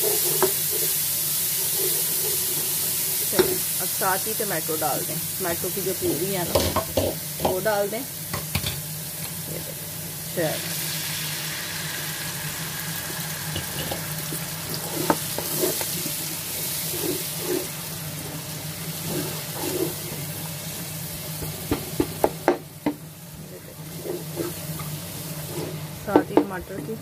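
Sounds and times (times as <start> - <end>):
tomato puree sizzling in oil: 0.0 - 27.0
wooden spoon scraping pot: 1.6 - 3.6, 14.7 - 18.4, 19.0 - 20.3, 23.5 - 26.8.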